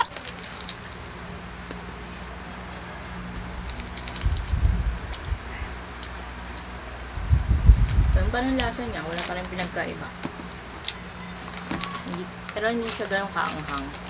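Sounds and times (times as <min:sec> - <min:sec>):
plastic snack packet crinkling: 0:00.0 - 0:01.0, 0:03.6 - 0:05.2, 0:07.8 - 0:09.8, 0:10.8 - 0:14.0
low steady hum: 0:00.0 - 0:14.0.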